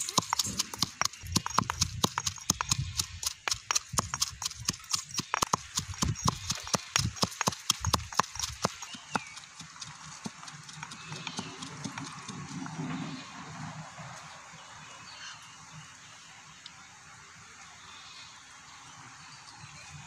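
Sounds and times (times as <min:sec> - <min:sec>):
stone pestle pounding in mortar: 0:00.0 - 0:09.3.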